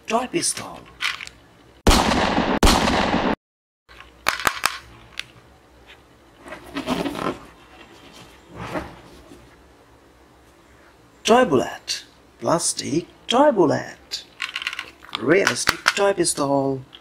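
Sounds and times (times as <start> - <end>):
soft handling sounds: 4.9 - 9.7
toy revolver plastic clicks: 14.4 - 16.1.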